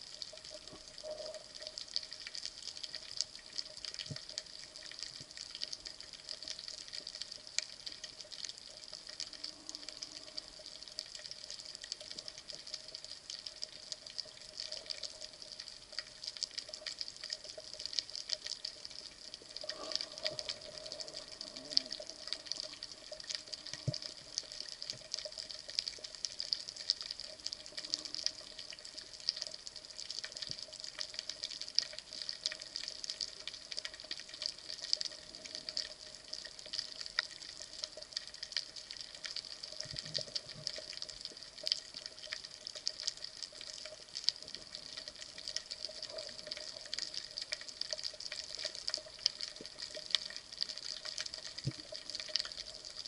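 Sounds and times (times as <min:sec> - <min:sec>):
faint steady hum: 0:00.0 - 0:53.0
crackling clicks: 0:00.1 - 0:53.0
underwater hiss: 0:18.9 - 0:24.2.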